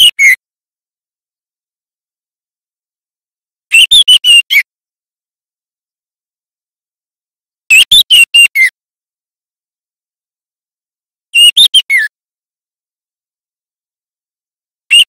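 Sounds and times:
bird whistling song: 0.0s - 0.3s, 3.7s - 4.6s, 11.4s - 12.1s.

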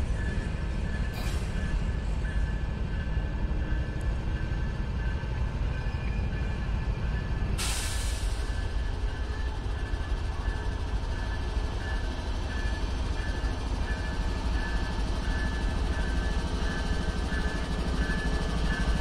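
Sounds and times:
sharp hiss: 7.6s - 8.6s.

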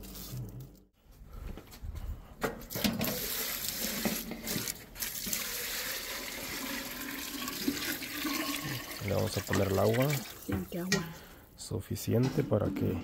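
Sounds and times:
water pouring into pot: 2.7s - 10.7s.

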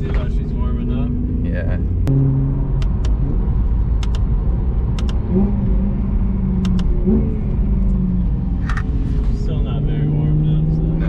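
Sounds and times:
car engine at low revs: 0.0s - 11.0s
light double clicks: 6.6s - 6.9s.

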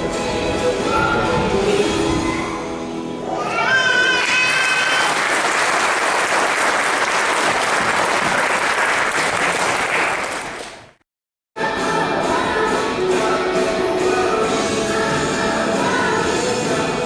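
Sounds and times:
music: 0.0s - 4.3s, 11.6s - 17.0s
audience applauding: 4.1s - 11.0s.

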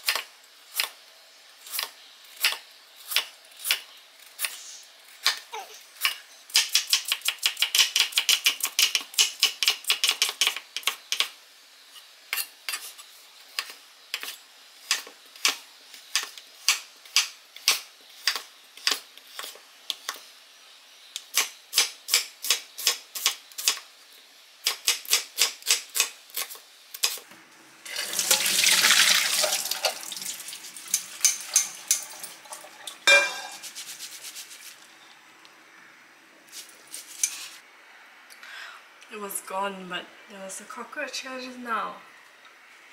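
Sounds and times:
water rushing into steel sink: 27.8s - 33.0s
sharp metal clank: 33.1s - 33.6s.

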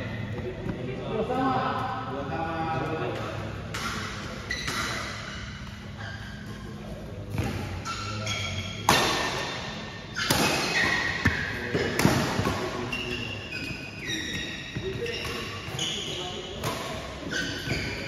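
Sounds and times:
rackets hitting shuttlecock: 3.1s - 5.6s, 8.8s - 13.6s
shoes squeaking on court: 3.8s - 18.0s.

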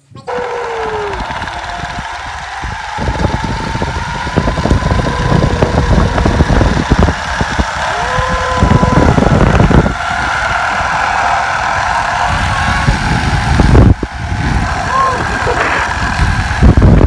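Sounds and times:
wind buffeting microphone: 0.0s - 17.0s
pulleys whining on cable: 0.3s - 17.0s.

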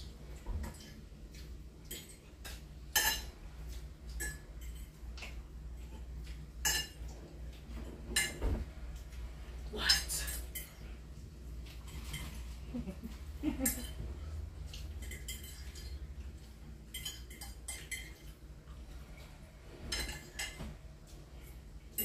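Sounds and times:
forks clinking on plates: 1.9s - 5.0s, 6.6s - 7.1s, 14.7s - 16.1s, 16.9s - 18.4s, 19.9s - 20.6s.

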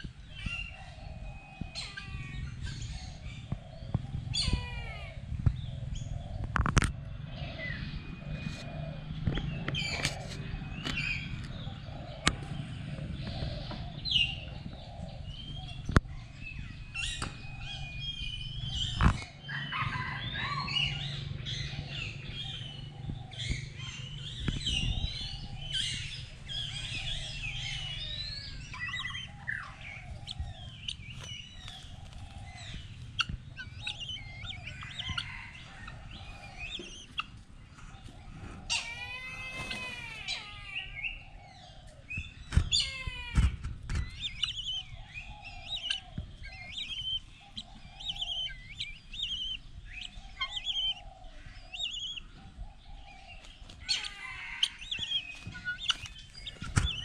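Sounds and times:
birds chirping: 0.0s - 57.0s
low repeated bird call: 0.0s - 57.0s
loud rising and falling bird call: 16.4s - 37.2s, 37.9s - 57.0s.

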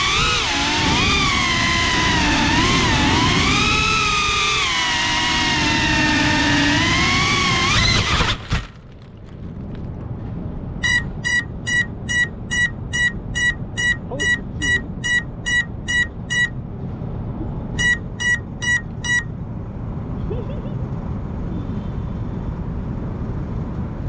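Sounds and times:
drone motors whining: 0.0s - 8.4s, 10.8s - 16.6s, 17.8s - 19.3s
short high beeps: 10.8s - 16.5s, 17.8s - 19.3s.

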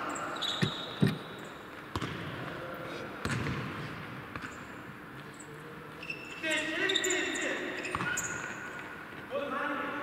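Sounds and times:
shoe squeak on court: 0.4s - 1.5s, 5.4s - 8.7s
ball kicked thuds: 1.9s - 2.2s.

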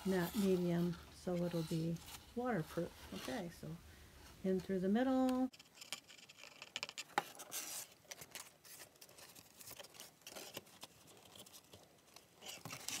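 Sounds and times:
paper rustling and clicking: 5.6s - 13.0s.

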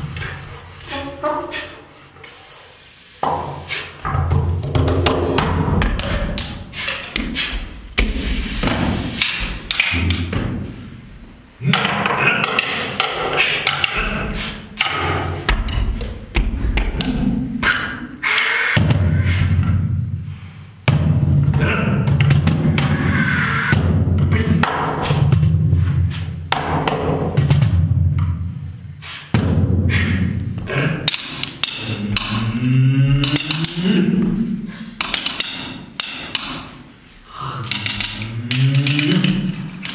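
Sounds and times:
cajon knocks and thumps: 4.1s - 10.7s
percussion rattling: 11.6s - 17.4s, 30.6s - 37.0s, 37.6s - 39.9s.

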